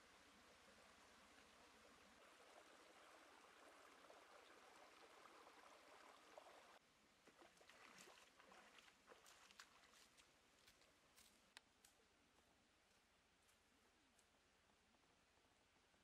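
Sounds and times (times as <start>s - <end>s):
feet wading through shallow water: 7.3s - 10.9s.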